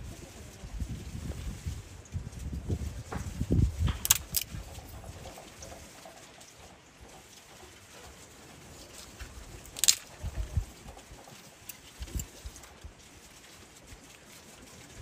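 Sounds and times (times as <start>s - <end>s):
wooden sticks clicking: 4.0s - 4.6s, 9.6s - 10.2s.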